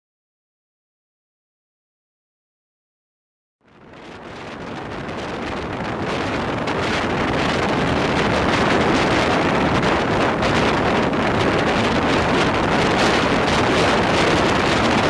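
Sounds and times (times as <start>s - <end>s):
wind rushing over microphone: 3.6s - 15.0s
train running noise: 3.7s - 15.0s.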